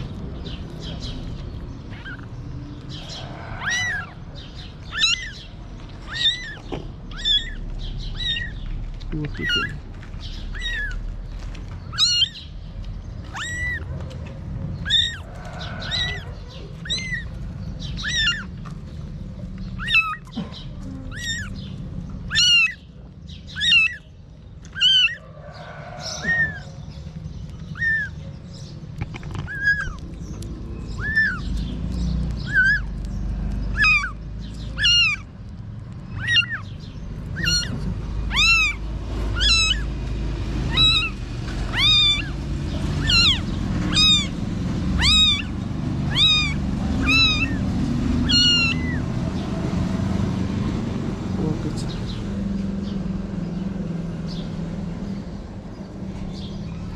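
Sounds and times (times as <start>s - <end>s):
kitten mewing: 1.9s - 2.3s, 2.9s - 4.2s, 4.8s - 11.0s, 11.9s - 12.4s, 13.2s - 14.2s, 14.8s - 18.6s, 19.8s - 21.6s, 22.2s - 22.9s, 23.6s - 24.0s, 24.7s - 25.2s, 26.1s - 26.8s, 27.7s - 28.2s, 29.3s - 30.1s, 31.0s - 31.5s, 32.3s - 32.9s, 33.7s - 35.3s, 36.1s - 40.0s, 40.6s - 49.2s.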